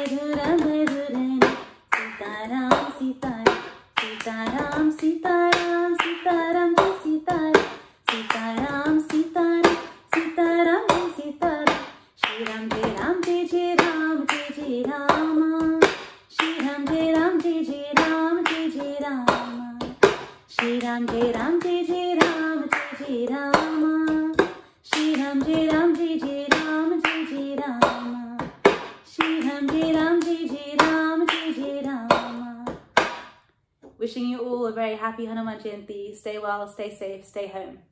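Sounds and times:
woman singing: 0.0 - 32.9
hand claps: 0.0 - 33.4
plastic cup knocking on table: 27.8 - 29.0.

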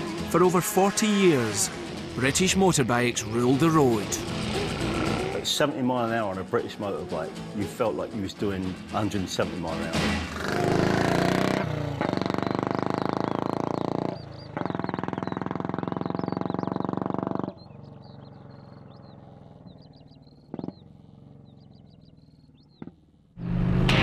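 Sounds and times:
birds chirping: 0.0 - 23.4
motorcycle engine revving: 0.0 - 24.0.

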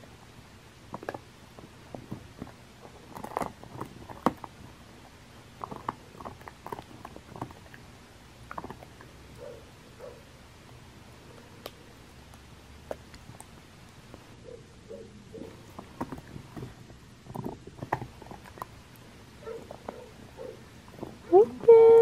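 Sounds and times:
dog gnawing on a chew: 0.9 - 9.5, 15.4 - 21.2.

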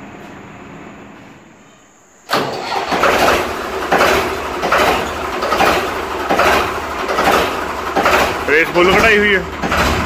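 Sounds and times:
tractor engine starting and running: 2.3 - 10.0.

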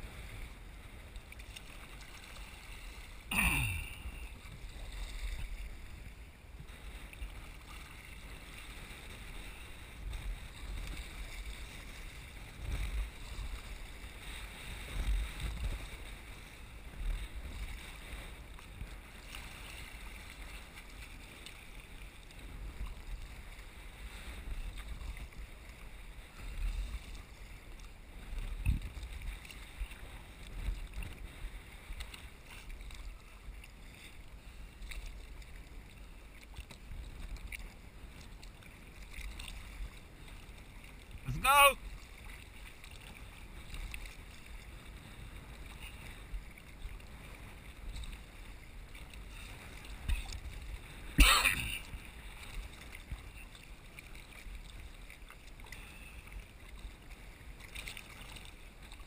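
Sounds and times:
wind rumbling on microphone: 0.0 - 21.1, 21.8 - 34.0
water splashing along kayak hull: 0.0 - 59.0.

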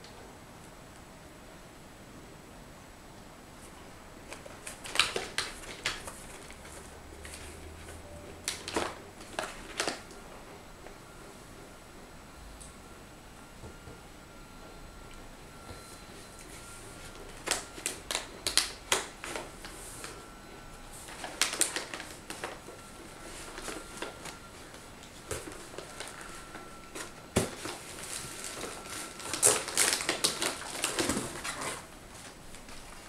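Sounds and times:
packaging rustling and crinkling: 4.2 - 10.2, 16.4 - 33.0.

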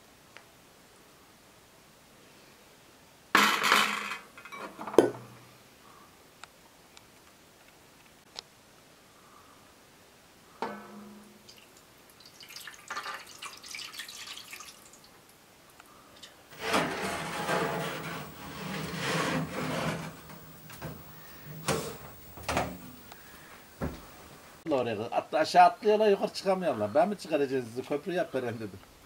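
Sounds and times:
water pouring into metal tray: 11.4 - 15.0.

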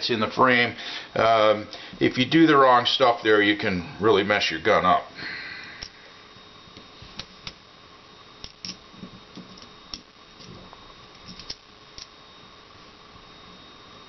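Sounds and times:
faint room hum: 0.0 - 14.0
small steel parts clicking: 8.4 - 10.6, 11.2 - 12.1.

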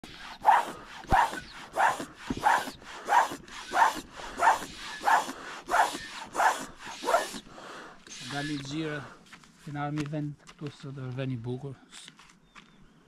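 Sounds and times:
footsteps crunching: 8.0 - 11.4.

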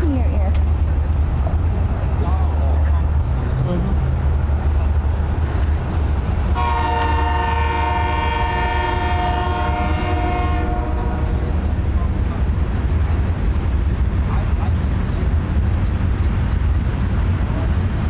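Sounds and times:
low rumble: 0.0 - 18.0
horn blast: 6.6 - 12.0.

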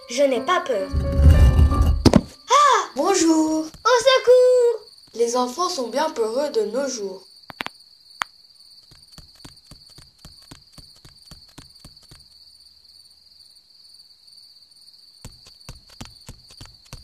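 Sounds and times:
crickets chirring: 0.0 - 17.0
faint irregular clicks: 7.5 - 12.4.

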